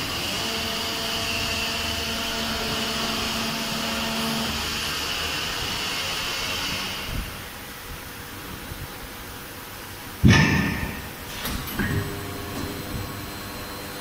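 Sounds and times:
press machine whine: 0:00.0 - 0:07.3, 0:10.7 - 0:14.0
press thump: 0:10.2 - 0:13.1.

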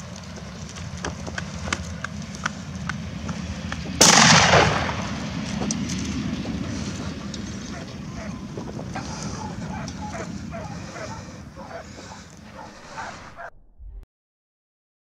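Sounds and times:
gunshot echoing: 0:04.0 - 0:05.5.

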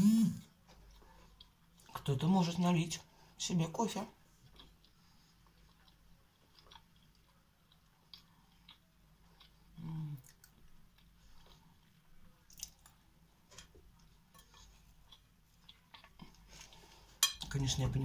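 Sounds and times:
chewing and mouth clicks: 0:00.8 - 0:02.1, 0:04.4 - 0:13.0, 0:14.0 - 0:17.0.

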